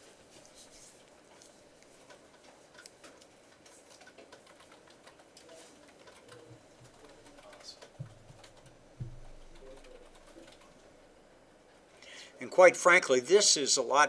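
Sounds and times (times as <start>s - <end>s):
faint clicks and taps: 0.3s - 10.9s
low thuds: 8.0s - 9.7s.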